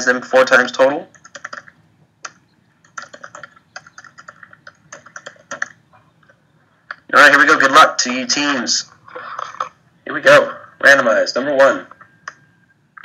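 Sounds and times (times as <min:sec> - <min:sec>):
laptop keyboard typing: 0:00.4 - 0:07.1.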